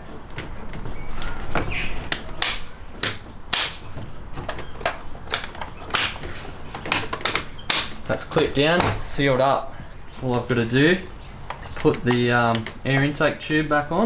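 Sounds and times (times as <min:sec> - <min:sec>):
plastic clips snapping: 0:00.3 - 0:03.8, 0:04.4 - 0:08.1, 0:11.4 - 0:12.9.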